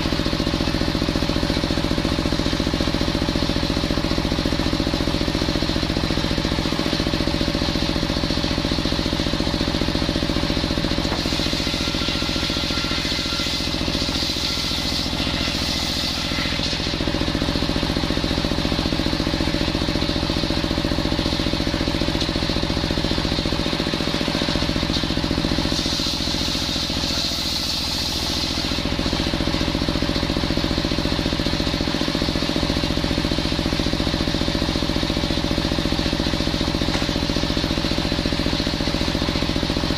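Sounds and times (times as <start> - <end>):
saw bench engine running: 0.0 - 39.9
saw blade cutting wood: 9.0 - 30.6, 36.1 - 38.5.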